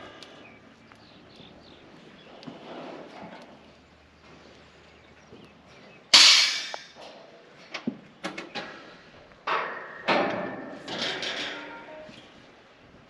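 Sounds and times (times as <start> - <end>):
loud metal clank: 6.1 - 7.0, 9.5 - 12.1.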